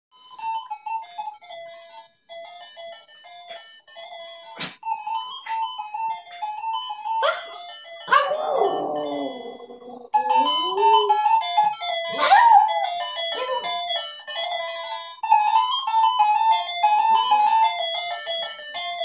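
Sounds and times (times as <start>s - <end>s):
chiming electronic melody: 0.2s - 19.0s
small dog howling: 7.2s - 11.2s, 12.2s - 12.9s.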